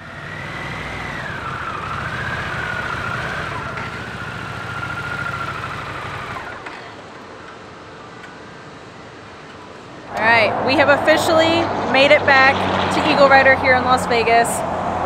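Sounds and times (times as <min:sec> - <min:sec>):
motorcycle engines idling: 0:00.0 - 0:08.4
high engine whine: 0:00.0 - 0:15.0.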